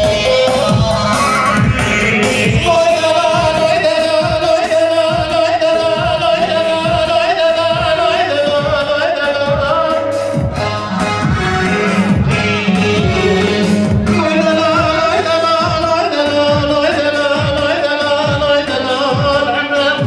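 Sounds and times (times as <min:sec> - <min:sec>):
steady drum beat: 0:00.0 - 0:20.0.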